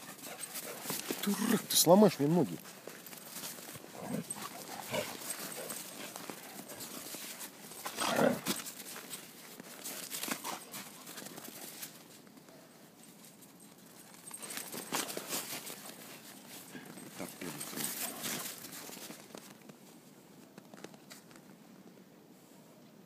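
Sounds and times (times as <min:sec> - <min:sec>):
dogs panting: 0:00.0 - 0:01.8, 0:02.5 - 0:08.1
steps crunching in snow: 0:00.5 - 0:12.1.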